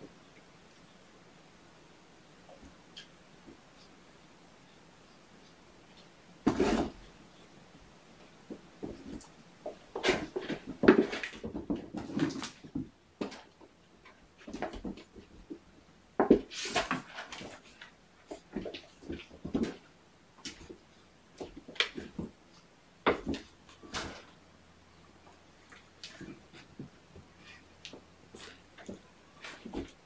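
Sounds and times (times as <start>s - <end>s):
kittens thumping and scrabbling: 8.5s - 15.6s, 16.2s - 20.8s, 25.7s - 30.0s.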